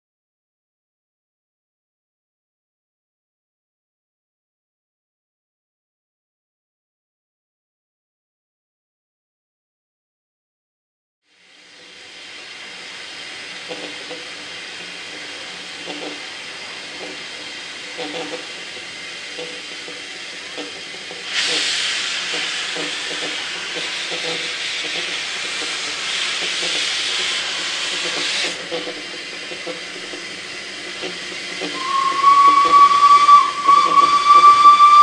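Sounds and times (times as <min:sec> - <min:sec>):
steam locomotive hissing: 0:11.3 - 0:35.0
long steam whistle: 0:31.6 - 0:35.0.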